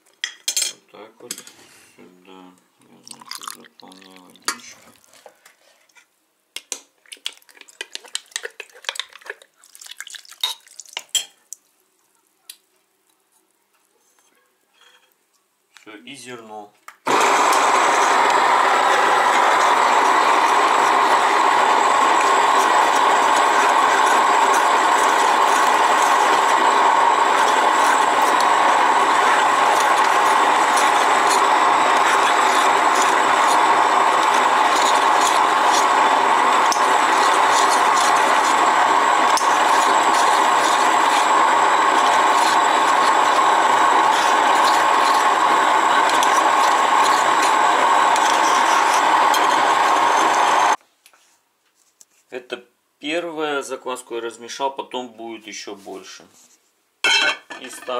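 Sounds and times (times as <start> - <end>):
grain mill grinding: 17.1 - 50.8.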